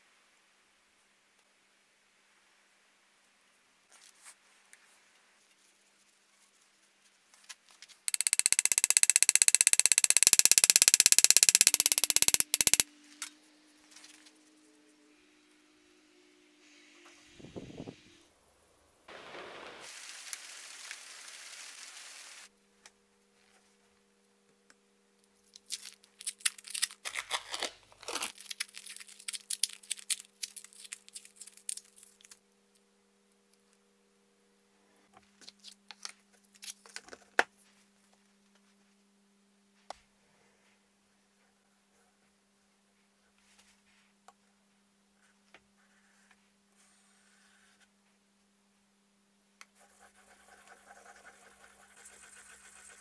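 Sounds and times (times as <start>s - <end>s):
steady hiss: 19.1s - 22.5s
paper tape peeling and tearing: 25.6s - 32.4s.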